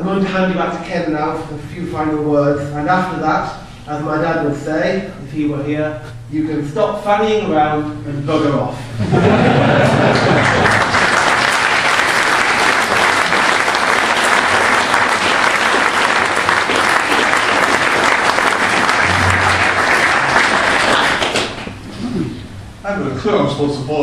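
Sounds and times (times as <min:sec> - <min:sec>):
crowd applauding: 0:09.8 - 0:21.8.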